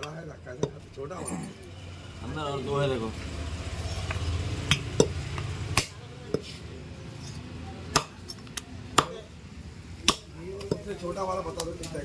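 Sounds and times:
cleaver and tools clinking: 6.3s - 8.6s.

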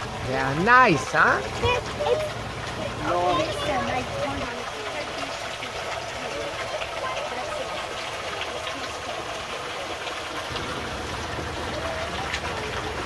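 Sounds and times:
boat motor running: 0.0s - 7.4s
water rushing along hull: 0.0s - 13.0s
wind: 0.0s - 13.0s.

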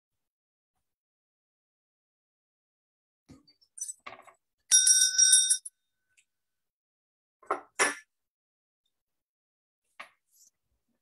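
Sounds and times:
hand bell ringing: 4.7s - 5.7s.

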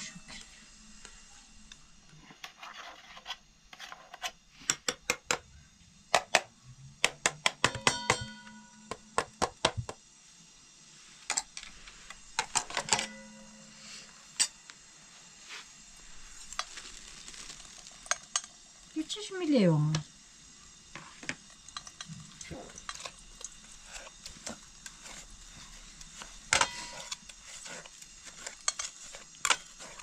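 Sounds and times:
kitchenware clinking and knocking: 7.3s - 9.9s, 12.4s - 13.5s, 26.5s - 27.2s.

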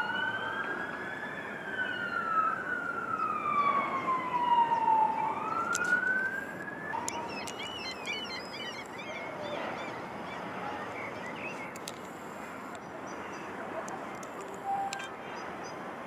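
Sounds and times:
fire engine siren wailing: 0.0s - 9.1s
traffic hiss: 5.5s - 16.0s.

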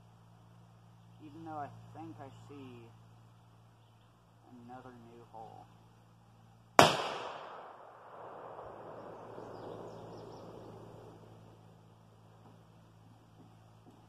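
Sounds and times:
rifle shot: 6.8s - 11.3s
gunshot echo rolling through woods: 6.8s - 11.6s.

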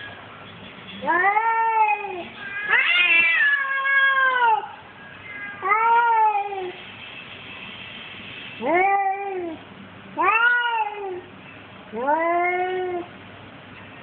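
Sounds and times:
cat meowing: 1.0s - 6.8s, 8.6s - 9.6s, 10.2s - 11.3s, 11.9s - 13.1s.

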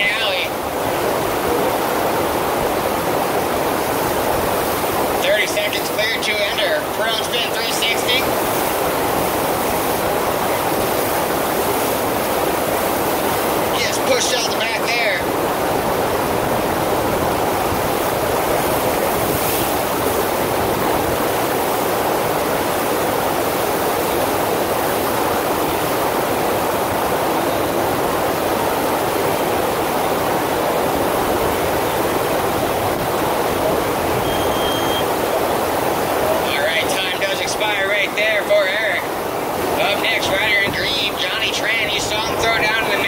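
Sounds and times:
rush of pumped water: 0.0s - 43.0s.

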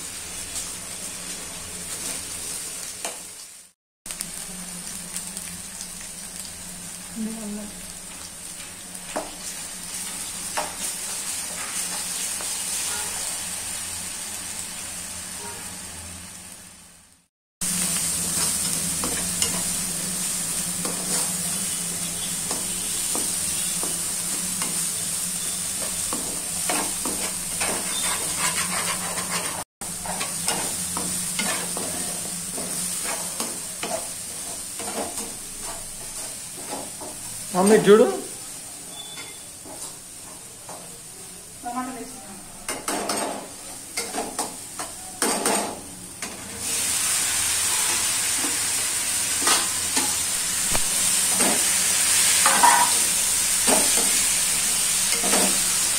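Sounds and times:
onions sizzling in oil: 0.0s - 55.9s
spatula scraping pan: 25.8s - 37.0s.

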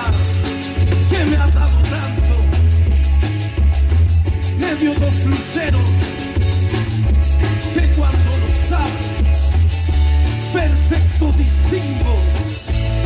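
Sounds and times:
man singing into microphone: 0.0s - 2.6s, 4.6s - 6.1s, 7.5s - 9.2s, 10.4s - 12.5s
live band amplified music: 0.0s - 13.0s.

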